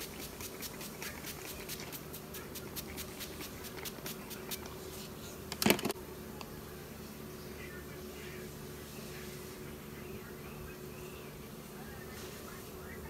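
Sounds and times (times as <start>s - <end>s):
spray bottle hissing sprays: 0.0s - 5.2s
faint steady hum: 0.0s - 13.0s.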